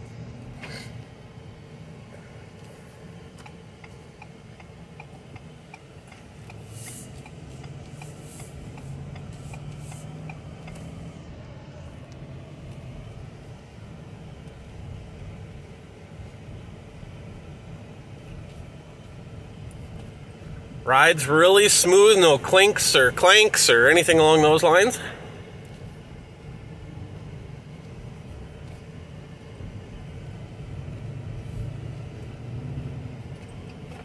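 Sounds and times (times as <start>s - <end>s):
pickup engine and road hum: 0.0s - 34.0s
turn signal clicking: 3.3s - 11.1s.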